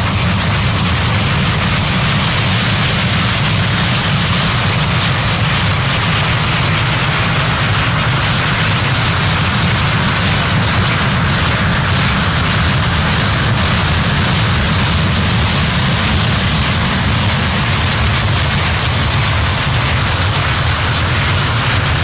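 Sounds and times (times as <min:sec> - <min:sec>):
broad electronic hiss: 0:00.0 - 0:22.0.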